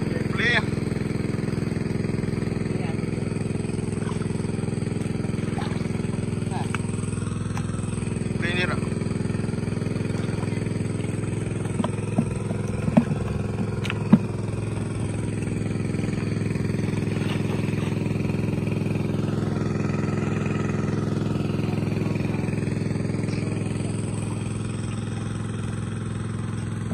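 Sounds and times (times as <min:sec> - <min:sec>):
water pump engine running: 0:00.0 - 0:26.9
sharp knocks: 0:11.6 - 0:14.5.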